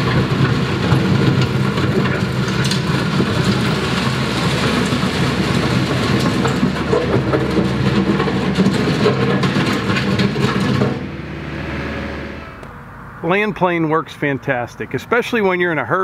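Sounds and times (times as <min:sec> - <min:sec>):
gravel crunching under blade: 0:00.0 - 0:12.8
tractor diesel engine running: 0:00.0 - 0:14.0.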